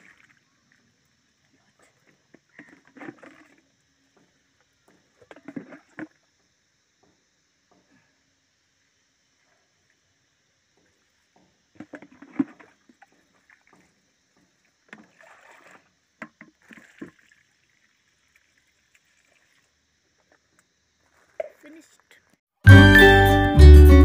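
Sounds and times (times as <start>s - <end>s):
water sloshing: 0.0s - 6.2s, 11.3s - 19.8s.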